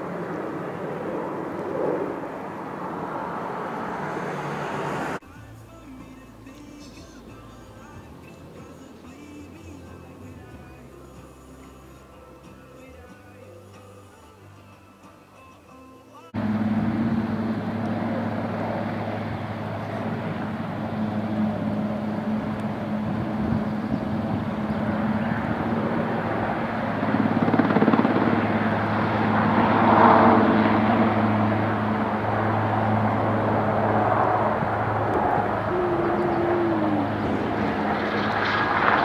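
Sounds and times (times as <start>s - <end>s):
helicopter hovering: 0.0s - 5.2s, 16.4s - 39.0s.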